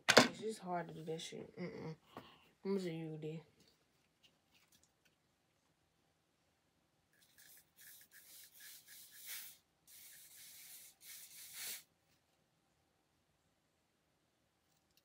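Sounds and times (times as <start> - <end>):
aerosol hair spray hissing: 7.8 - 11.9.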